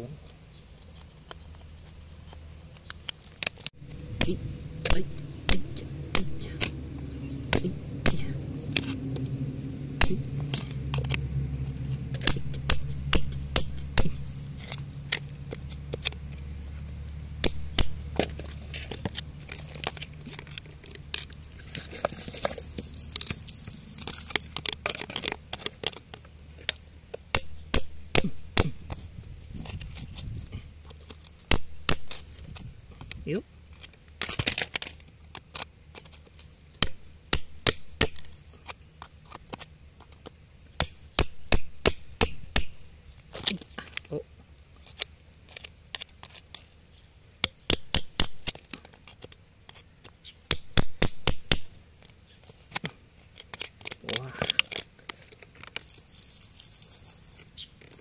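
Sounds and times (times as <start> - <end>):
metal tool scraping rock and soil: 0.0 - 58.0
low hum: 3.5 - 25.5.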